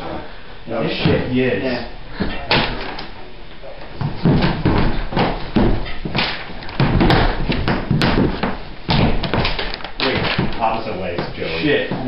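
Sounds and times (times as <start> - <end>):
feet stamping on a floor: 3.8 - 12.0.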